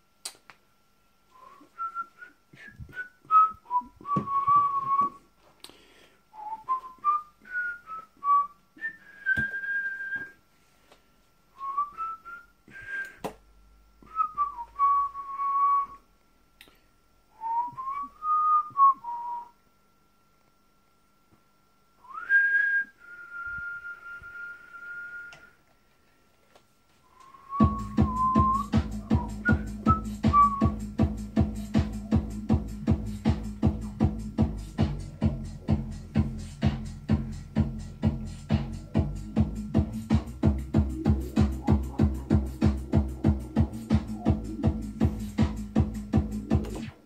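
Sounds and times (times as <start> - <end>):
person whistling a tune: 1.3 - 5.2, 6.3 - 10.4, 11.6 - 13.3, 14.0 - 16.1, 17.4 - 19.6, 22.0 - 25.6, 27.1 - 34.0.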